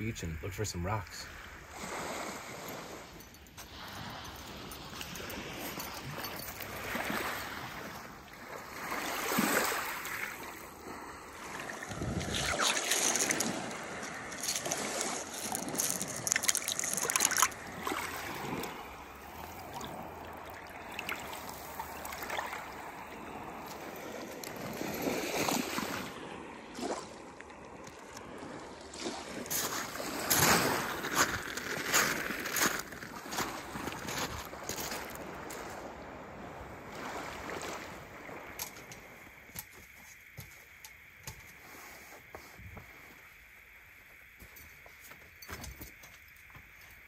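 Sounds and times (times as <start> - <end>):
small waves on pebble beach: 0.2 - 40.4
clicks and splashes among stones: 11.8 - 18.8.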